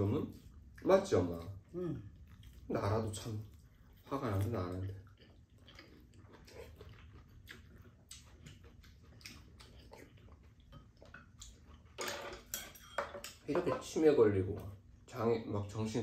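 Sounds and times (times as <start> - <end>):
people chewing: 0.0 - 12.6
utensils clicking against bowls: 11.9 - 14.0.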